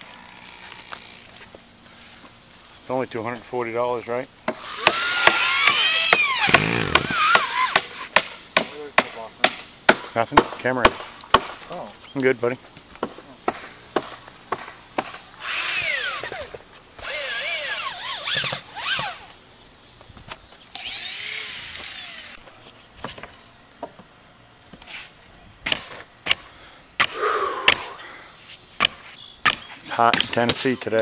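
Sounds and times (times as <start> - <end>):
power drill boring into wood: 4.6 - 7.9, 15.4 - 19.3, 20.7 - 22.4.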